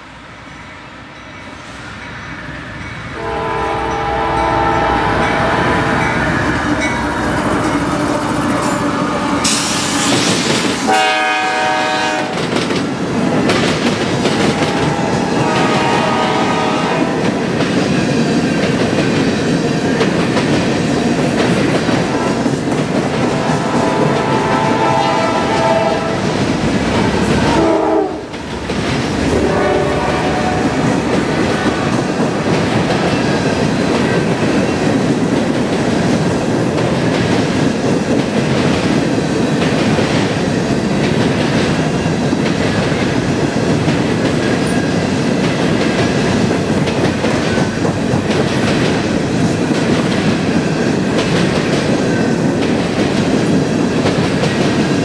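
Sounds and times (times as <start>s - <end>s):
train wheels rumbling on rails: 0.0s - 55.0s
train horn: 3.2s - 10.0s, 10.9s - 12.4s, 14.4s - 17.2s, 23.2s - 26.4s, 27.0s - 28.3s, 29.2s - 31.0s.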